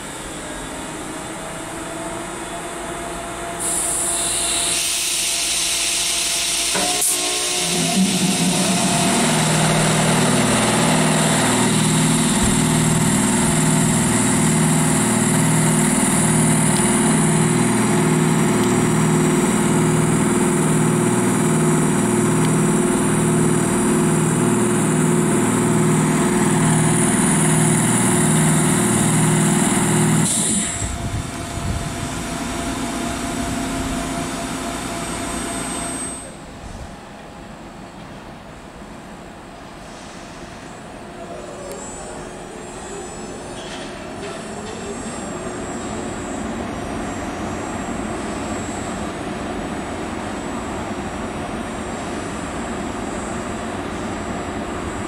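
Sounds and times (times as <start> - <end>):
locomotive machinery droning: 0.0 - 36.6.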